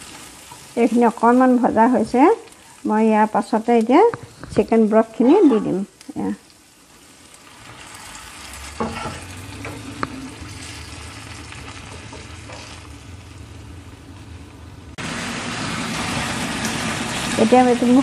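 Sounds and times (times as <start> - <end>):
broth sizzling in a pan: 0.0 - 18.0.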